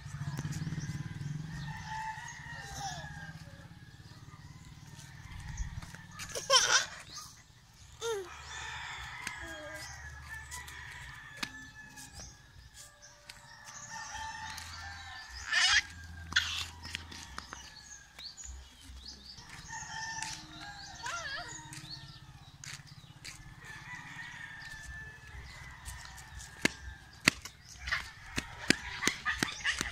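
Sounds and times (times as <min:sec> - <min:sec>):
roosters crowing: 0:00.1 - 0:07.4, 0:08.0 - 0:29.9
high-pitched cry: 0:06.3 - 0:07.1.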